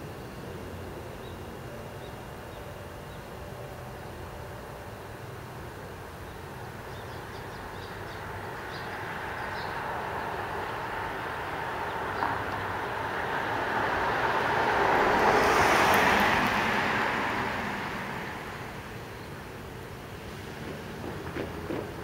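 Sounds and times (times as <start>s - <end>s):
vehicle passing by: 8.1s - 19.2s, 20.1s - 22.0s.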